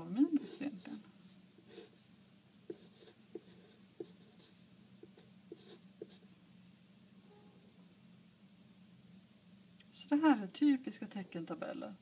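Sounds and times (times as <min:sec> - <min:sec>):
pen scratching on paper: 0:01.7 - 0:02.0, 0:02.7 - 0:06.2.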